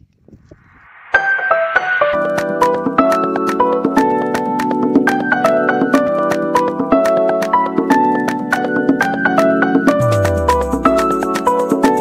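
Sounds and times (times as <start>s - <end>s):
held melodic notes: 9.4s - 12.0s
quick percussive beat: 9.9s - 12.0s.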